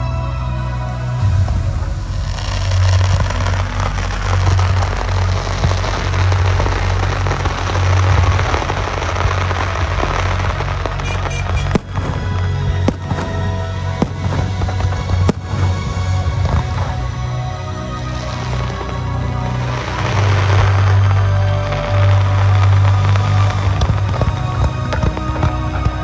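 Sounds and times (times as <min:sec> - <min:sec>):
loud music with heavy bass: 0:11.0 - 0:11.8
sharp firework bangs: 0:11.0 - 0:12.0
fireworks going off: 0:11.0 - 0:12.2.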